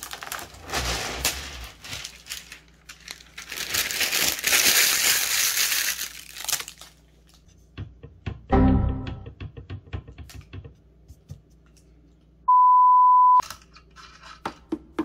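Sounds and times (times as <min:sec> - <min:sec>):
steady beep tone: 0:12.5 - 0:13.4.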